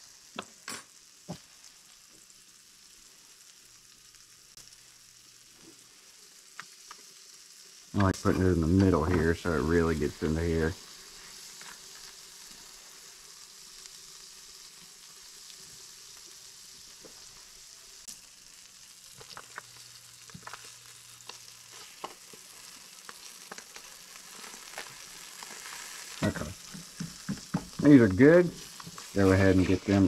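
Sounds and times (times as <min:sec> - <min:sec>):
fish sizzling in a pan: 0:00.0 - 0:30.0
oil popping: 0:19.2 - 0:29.8.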